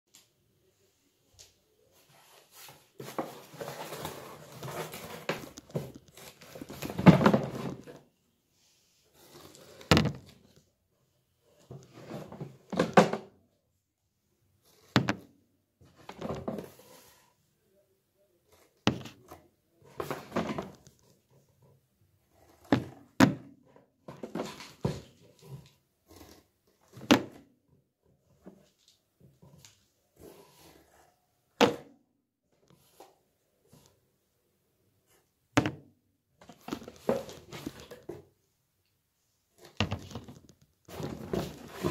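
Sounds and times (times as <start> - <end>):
cardboard and packing rustling: 1.8 - 8.2, 14.6 - 17.4, 24.0 - 27.5, 36.4 - 38.4, 39.5 - 41.9.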